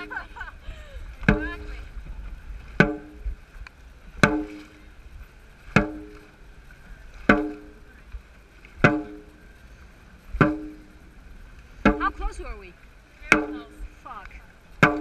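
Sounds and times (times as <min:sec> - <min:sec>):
drum booming hits: 0:02.8 - 0:03.3.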